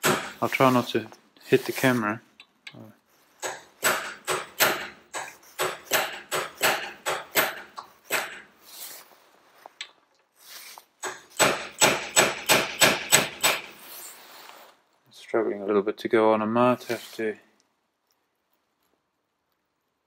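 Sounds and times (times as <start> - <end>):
hammer tapping steel punch: 3.4 - 8.5.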